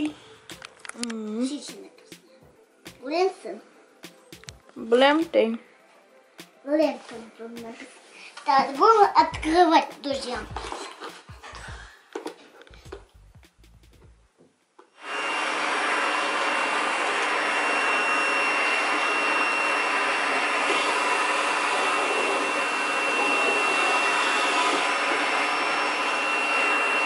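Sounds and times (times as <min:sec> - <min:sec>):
vacuum cleaner running: 0:15.0 - 0:27.0.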